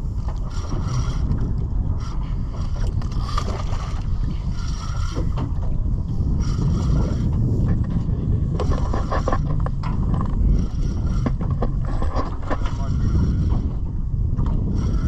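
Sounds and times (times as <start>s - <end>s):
water washing against boat: 0.0s - 13.9s
wind buffeting microphone: 0.0s - 15.0s.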